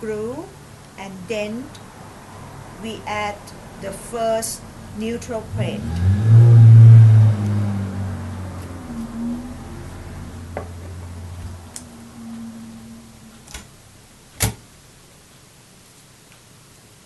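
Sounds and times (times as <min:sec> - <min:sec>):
low hum: 0:02.8 - 0:15.1.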